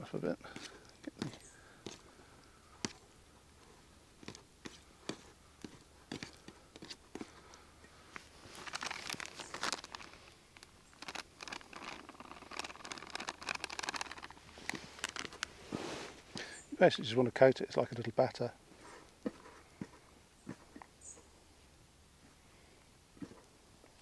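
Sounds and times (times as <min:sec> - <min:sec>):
bag crinkling: 0:08.2 - 0:16.5.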